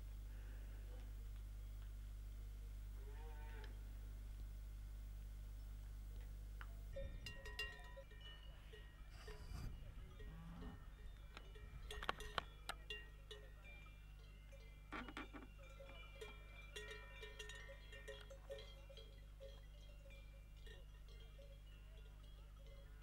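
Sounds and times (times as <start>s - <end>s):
cowbells clanking: 6.9s - 23.0s.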